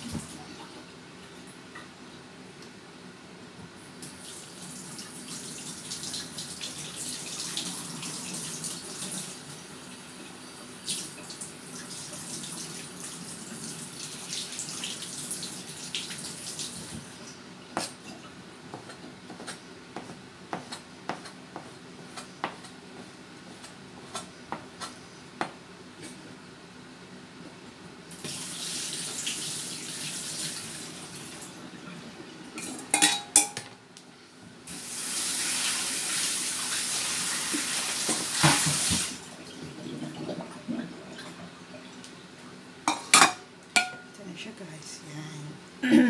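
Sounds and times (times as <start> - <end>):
cleaver chopping on cutting board: 18.8 - 22.8.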